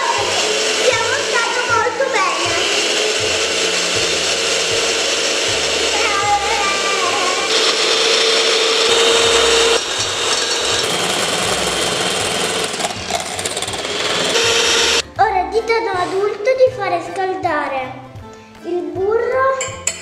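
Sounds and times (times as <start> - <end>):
electric hand mixer whining: 0.0 - 15.0.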